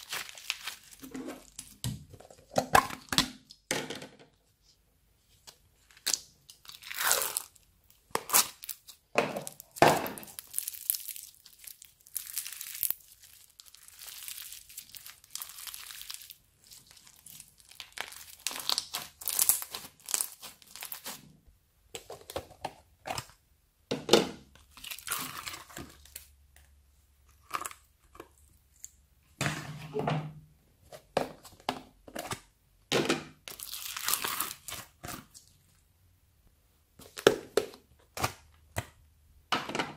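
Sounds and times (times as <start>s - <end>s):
hands squishing slime: 0.0s - 1.8s, 6.0s - 21.2s
plastic tubs handled: 0.0s - 4.7s, 19.7s - 26.6s, 29.3s - 33.6s.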